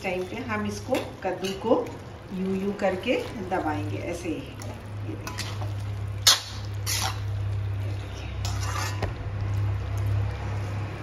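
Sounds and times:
spatula squishing soft pumpkin: 0.0 - 11.0
metal scraping on a pan: 5.1 - 9.2.

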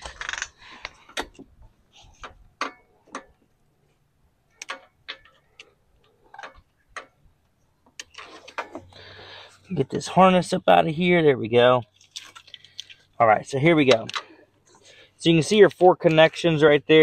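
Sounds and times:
plastic harness clicking: 0.0 - 1.4.

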